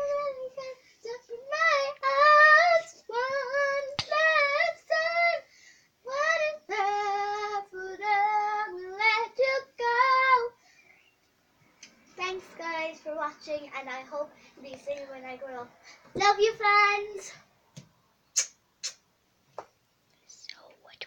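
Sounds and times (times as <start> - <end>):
girl singing unaccompanied: 0.0 - 11.1, 12.1 - 17.5.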